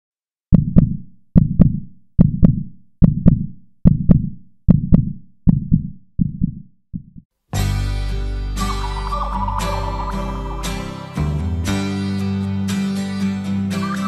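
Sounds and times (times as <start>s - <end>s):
heartbeat thumps: 0.5s - 7.3s.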